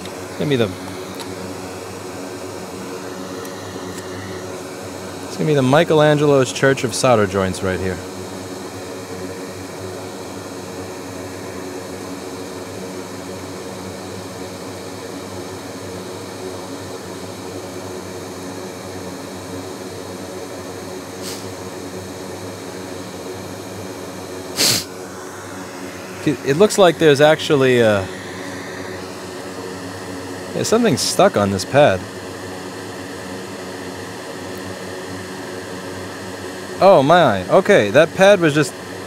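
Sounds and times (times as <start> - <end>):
fan humming: 0.0 - 13.3, 20.9 - 39.0
loud sneeze: 24.6 - 24.9.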